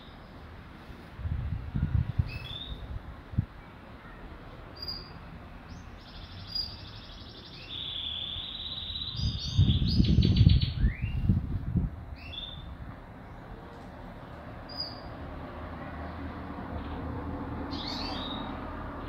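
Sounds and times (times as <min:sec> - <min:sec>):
canaries singing: 0:02.2 - 0:03.0, 0:04.7 - 0:11.4, 0:12.1 - 0:13.5, 0:14.6 - 0:15.2, 0:16.6 - 0:19.0
low rumbling on microphone: 0:09.1 - 0:13.6.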